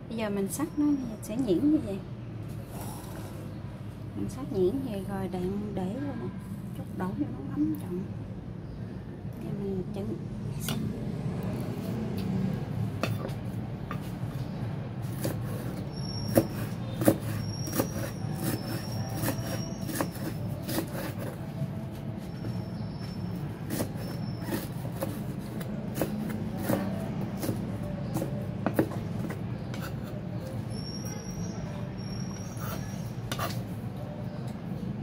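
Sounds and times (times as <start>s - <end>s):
knife chopping on wooden block: 15.1s - 21.4s, 23.7s - 30.2s.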